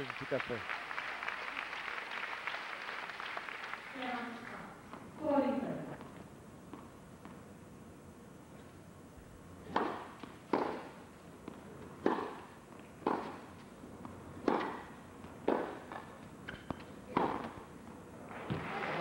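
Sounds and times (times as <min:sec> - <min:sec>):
rackets hitting tennis ball: 0:09.6 - 0:19.0.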